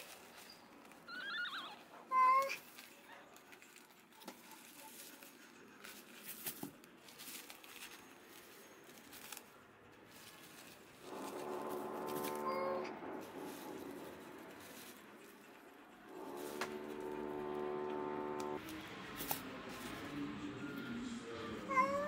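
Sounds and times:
paper and cloth rustling: 0.0s - 1.1s, 2.1s - 15.6s, 18.5s - 20.4s
low animal cry: 11.1s - 14.6s.

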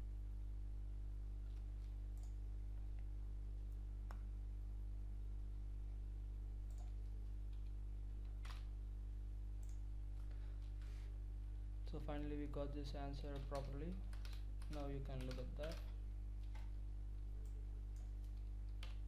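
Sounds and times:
low electrical hum: 0.0s - 19.0s.

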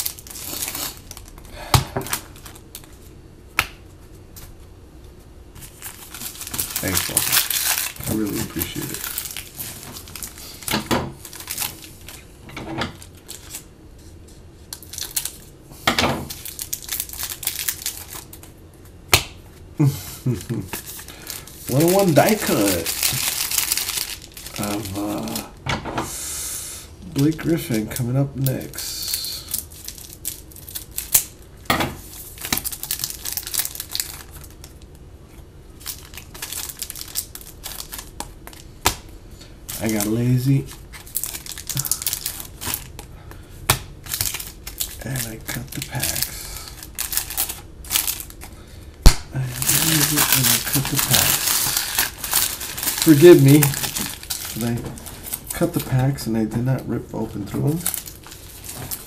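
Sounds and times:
foil wrappers crinkling: 0.0s - 3.2s, 5.6s - 13.7s, 14.3s - 15.5s, 16.2s - 25.6s, 27.0s - 31.4s, 32.0s - 35.0s, 35.8s - 48.7s, 49.3s - 59.0s.

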